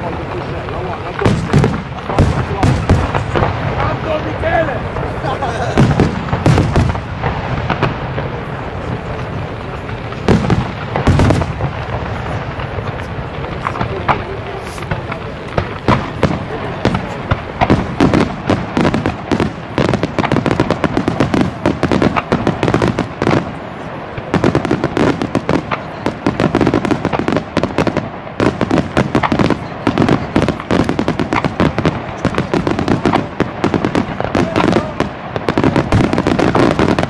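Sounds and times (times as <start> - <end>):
firework bangs and crackles: 0.0 - 37.0
fireworks bursting: 0.0 - 37.0.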